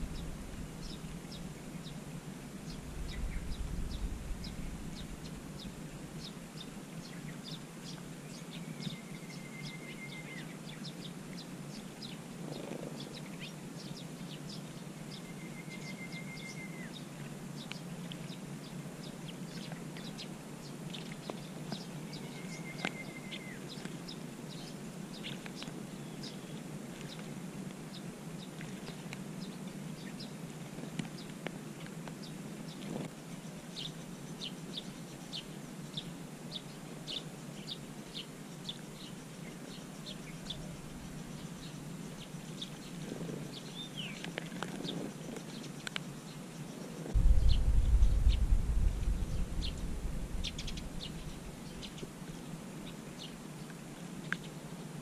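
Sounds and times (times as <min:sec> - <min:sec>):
sparrows chirping: 0:00.0 - 0:02.0, 0:02.6 - 0:18.4, 0:19.0 - 0:27.2, 0:32.9 - 0:48.5, 0:49.1 - 0:53.4
low background hum: 0:00.0 - 0:54.8
brief low rumble: 0:02.7 - 0:05.5, 0:47.2 - 0:51.8.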